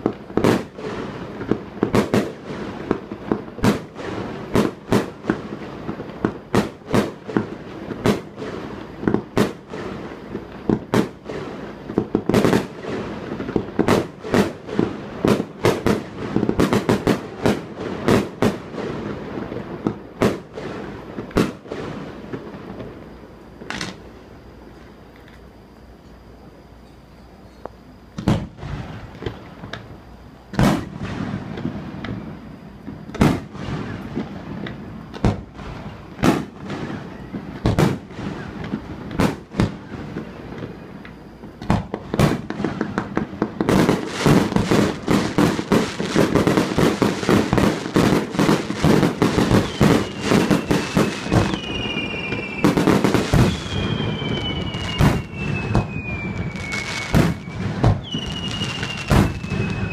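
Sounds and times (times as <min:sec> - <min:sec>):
fireworks bangs: 0:00.0 - 0:24.2, 0:28.1 - 0:59.9
fireworks crackling: 0:00.0 - 0:26.7, 0:27.4 - 0:59.9
falling whistle tones: 0:49.4 - 0:59.9.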